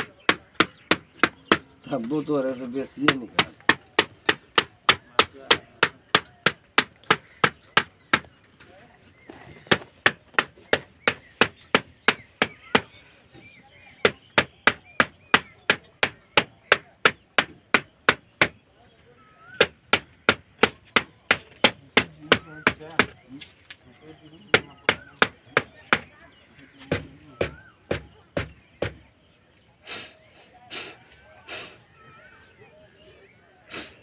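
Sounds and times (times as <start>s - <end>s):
air filter being knocked: 24.4s - 26.1s.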